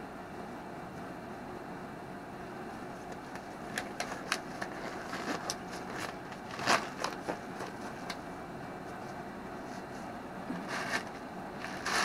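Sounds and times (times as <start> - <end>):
rubber gloves crackling and snapping: 3.1 - 8.2.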